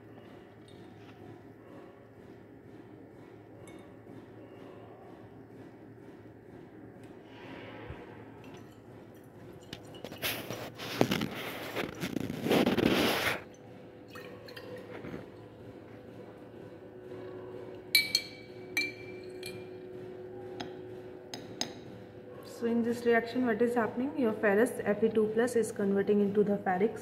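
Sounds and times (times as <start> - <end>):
liquid sloshing in glass flask: 8.4 - 15.5
glass rod clinking on glassware: 18.0 - 19.7.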